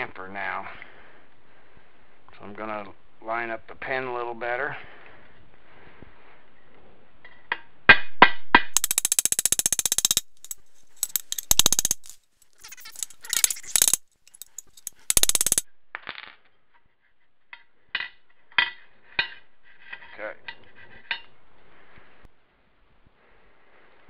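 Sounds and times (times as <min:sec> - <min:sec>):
hammer striking metal pin: 0:08.8 - 0:15.6.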